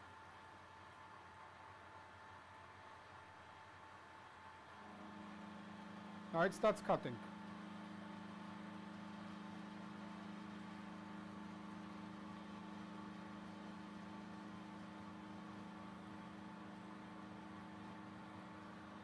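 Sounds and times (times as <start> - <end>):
milling machine humming: 4.8 - 19.0.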